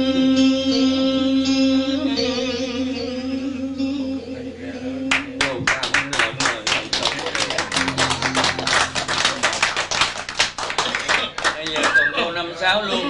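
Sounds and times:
audience applauding: 0:05.1 - 0:12.1
faint held music notes: 0:07.2 - 0:10.2.

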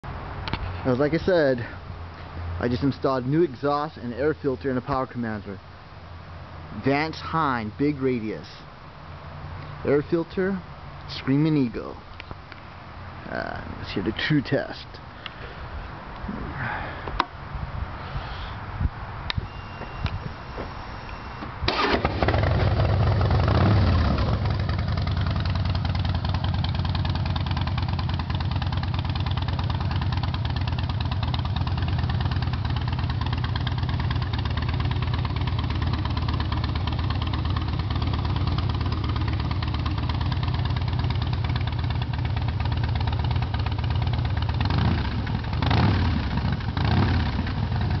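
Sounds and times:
motorcycle throttle blips: 0:19.2 - 0:48.0
motorcycle engine starting and idling: 0:21.2 - 0:48.0.

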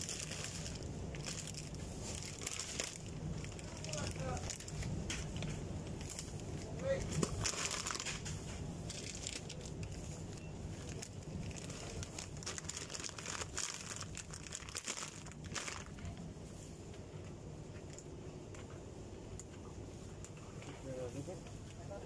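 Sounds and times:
plastic bags crinkling: 0:00.0 - 0:16.3
low steady hum: 0:00.0 - 0:22.0.

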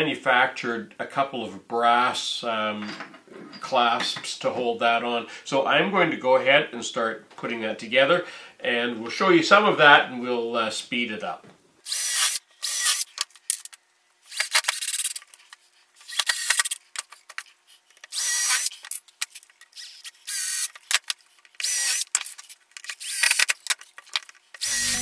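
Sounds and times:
cordless drill spinning: 0:11.8 - 0:13.7, 0:14.3 - 0:15.3, 0:16.0 - 0:17.0, 0:18.0 - 0:25.0.

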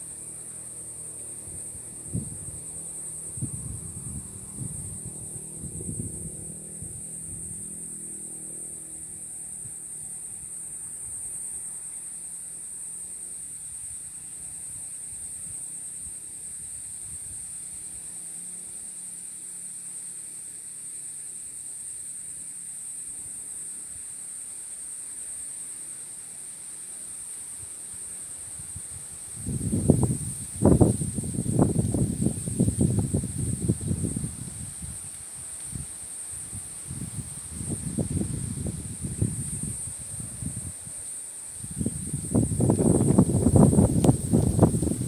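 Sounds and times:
insect drone: 0:00.0 - 0:45.0
wind buffeting microphone: 0:03.3 - 0:07.6, 0:29.4 - 0:35.0, 0:35.6 - 0:40.8, 0:41.6 - 0:45.0.

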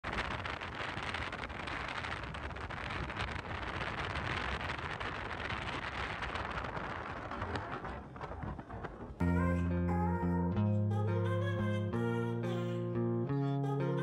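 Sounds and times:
wind rushing over microphone: 0:00.0 - 0:09.2
tyre and road rumble: 0:00.0 - 0:09.3.

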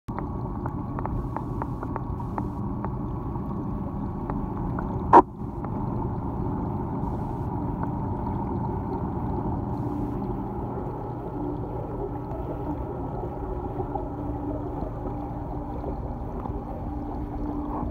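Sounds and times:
faint ticks: 0:00.1 - 0:03.0
muffled pump hum and water rush: 0:00.1 - 0:17.9.

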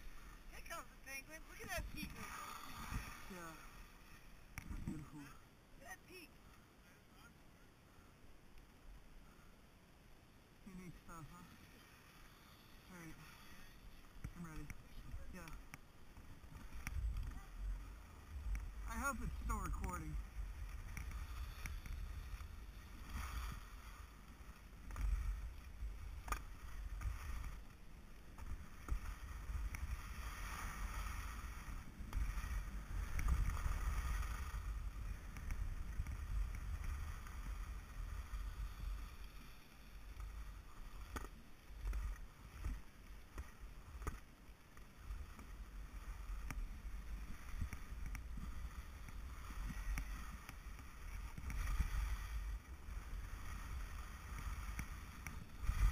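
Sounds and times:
skis scraping on snow: 0:00.0 - 0:05.9, 0:10.7 - 0:55.9
wind rumble on microphone: 0:45.0 - 0:55.9.

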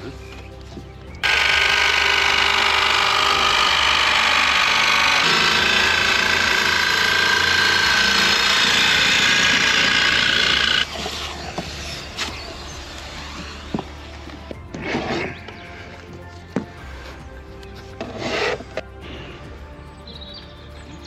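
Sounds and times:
power tool running: 0:01.2 - 0:11.4.

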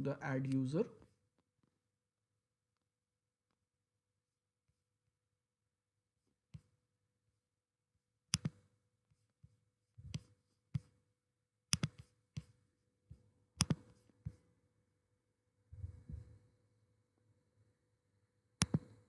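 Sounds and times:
computer mouse clicking: 0:08.3 - 0:08.7, 0:11.7 - 0:12.6, 0:13.6 - 0:14.4, 0:18.6 - 0:19.0.

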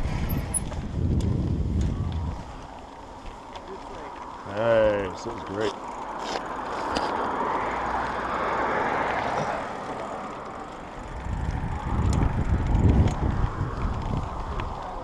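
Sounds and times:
wind buffeting microphone: 0:00.0 - 0:05.6, 0:10.4 - 0:15.0
bike tyre rolling on asphalt: 0:00.0 - 0:15.0.

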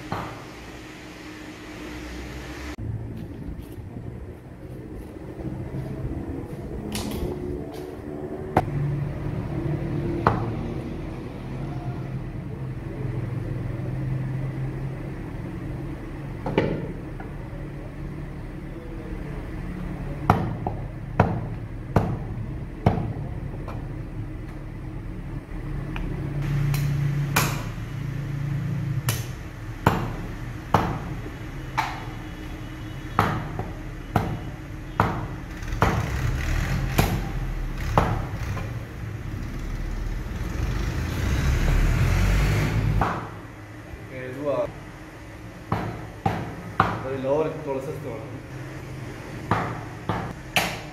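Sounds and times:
steady low hum: 0:00.0 - 0:36.1
cleaver chopping meat on wood: 0:20.3 - 0:23.2, 0:27.3 - 0:27.7, 0:29.1 - 0:31.1, 0:33.2 - 0:36.2, 0:36.9 - 0:37.3, 0:43.0 - 0:43.4, 0:45.7 - 0:47.0, 0:49.5 - 0:50.9.

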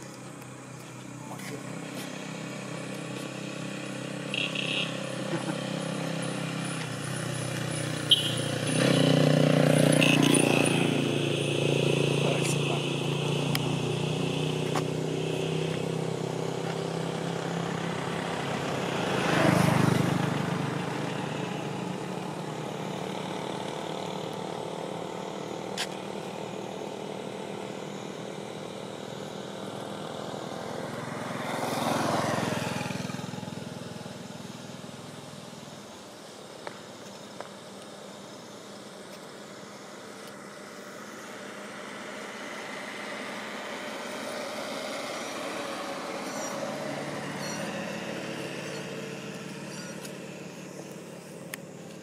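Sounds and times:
motor vehicles passing: 0:00.0 - 0:52.0.

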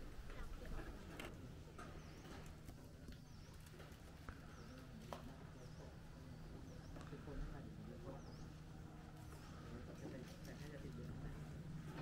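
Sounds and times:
low steady hum: 0:00.0 - 0:12.0
quiet footsteps: 0:00.0 - 0:12.0
bird chirping: 0:01.7 - 0:09.6.

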